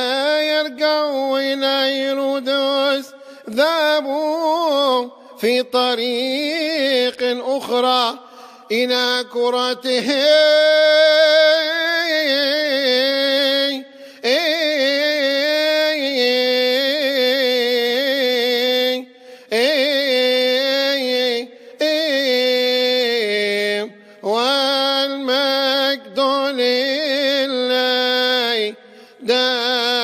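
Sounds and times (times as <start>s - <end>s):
man chanting unaccompanied: 0.0s - 30.0s
breaths: 3.1s - 3.6s, 8.2s - 8.7s, 13.8s - 14.3s, 19.1s - 19.6s, 21.5s - 21.8s, 23.9s - 24.3s, 28.8s - 29.3s.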